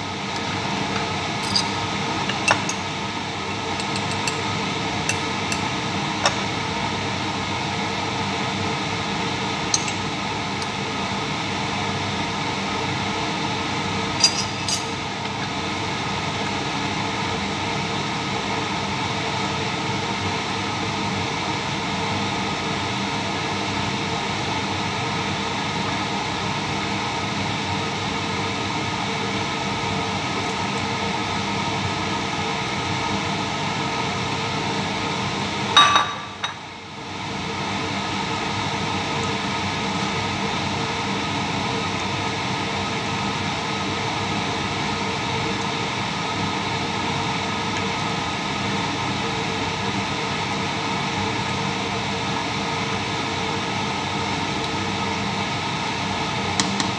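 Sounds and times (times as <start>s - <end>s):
mechanical hum and hiss: 0.0s - 56.9s
metal spoon clinking on glass jar: 1.4s - 1.8s, 14.2s - 15.0s.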